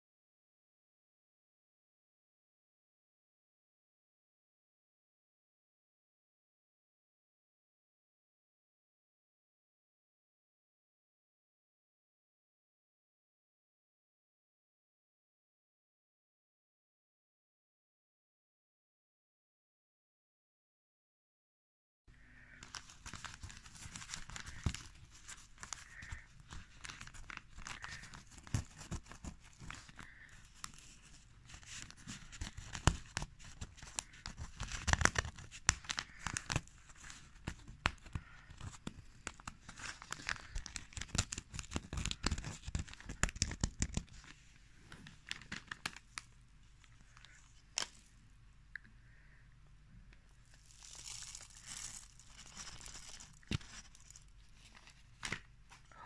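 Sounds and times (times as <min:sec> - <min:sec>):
paper crinkling and rustling: 0:22.6 - 0:48.1, 0:50.5 - 0:55.9.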